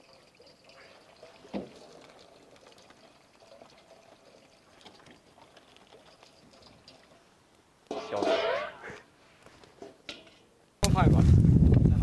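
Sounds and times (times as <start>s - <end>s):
water trickling into a steel basin: 0.0s - 8.8s.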